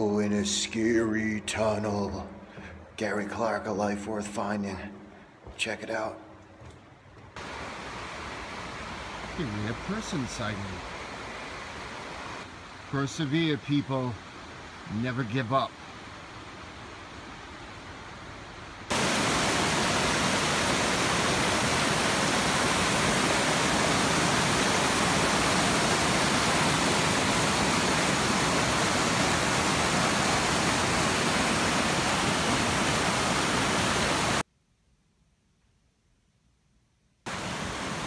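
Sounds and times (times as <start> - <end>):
whitewater rushing between boulders: 18.9 - 34.4, 37.3 - 38.0.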